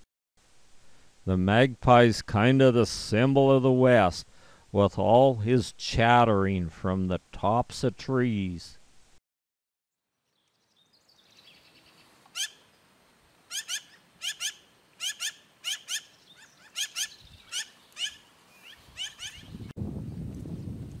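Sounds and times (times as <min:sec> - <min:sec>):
magpie calling: 0:12.3 - 0:12.7, 0:13.5 - 0:19.6.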